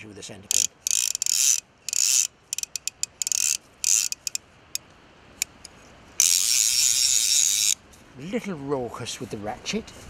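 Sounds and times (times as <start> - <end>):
fishing reel ratchet clicking: 0.5 - 4.4, 6.2 - 7.8.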